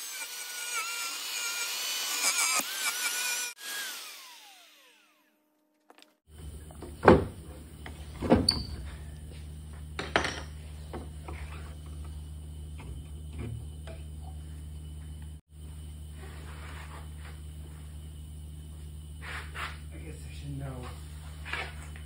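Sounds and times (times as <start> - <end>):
steady low hum: 6.3 - 22.0.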